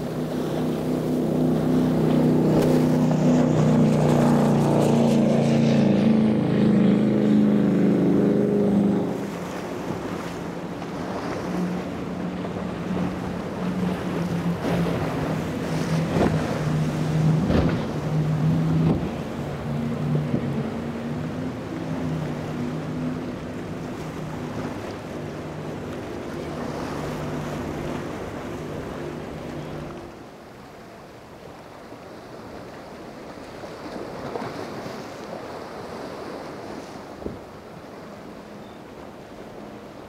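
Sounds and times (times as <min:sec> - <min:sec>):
wind on microphone: 0:00.0 - 0:30.0
engine drone: 0:00.0 - 0:30.2
powerboat engines running loud: 0:00.0 - 0:40.0
waves splashing: 0:00.0 - 0:40.0.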